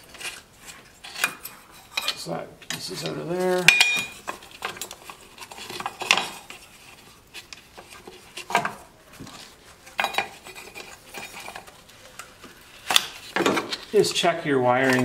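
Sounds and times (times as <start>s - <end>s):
metal and plastic parts clattering: 0.0s - 14.0s, 14.7s - 15.0s.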